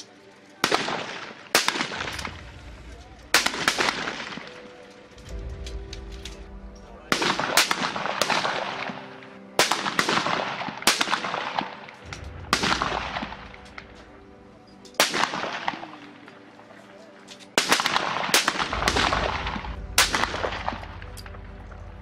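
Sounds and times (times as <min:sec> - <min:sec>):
rifle shots with rolling echo: 0:00.6 - 0:14.3, 0:14.9 - 0:16.4, 0:17.4 - 0:21.8.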